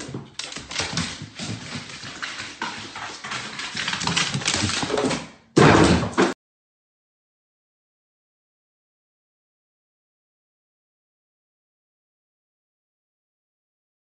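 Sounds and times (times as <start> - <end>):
dog claws clattering down stairs: 0.0 - 6.4.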